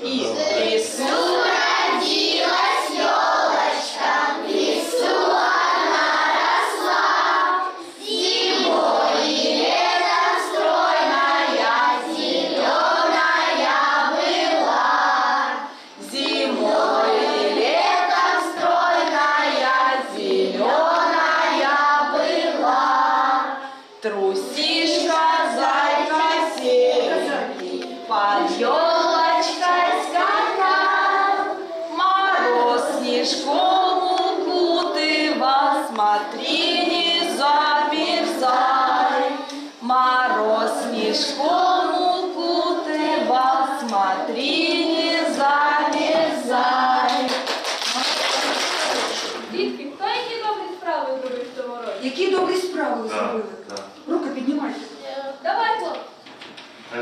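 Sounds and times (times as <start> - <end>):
young children singing: 0.0 - 47.6.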